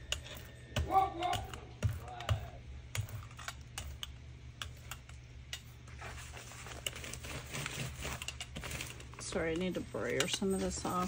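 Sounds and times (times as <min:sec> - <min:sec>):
paper rustling: 0:05.8 - 0:09.6.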